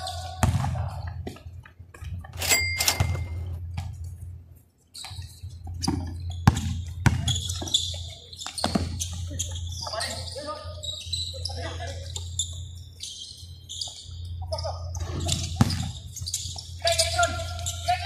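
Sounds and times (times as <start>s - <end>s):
basketball bouncing: 0.3s - 1.4s, 3.0s - 3.9s, 5.8s - 7.8s, 8.6s - 9.2s, 15.3s - 16.0s
shoe squeak: 2.4s - 3.7s, 4.9s - 18.0s.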